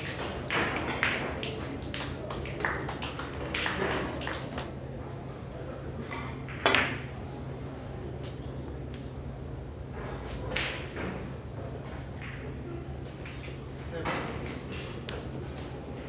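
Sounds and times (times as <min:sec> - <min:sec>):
low hum of hall: 0:00.0 - 0:16.0.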